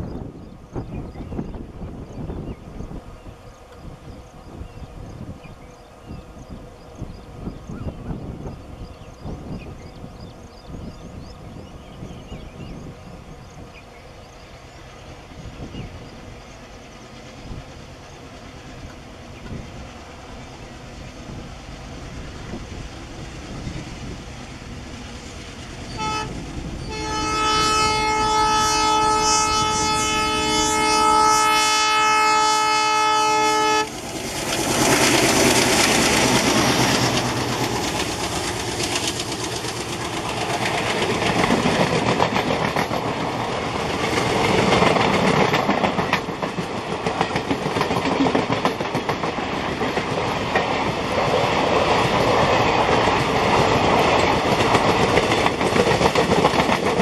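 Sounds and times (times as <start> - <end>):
diesel locomotive engines: 0.0 - 57.0
train rolling on rails: 0.0 - 57.0
multi-tone train horn blast: 25.9 - 34.0
train horn toot: 25.9 - 34.0.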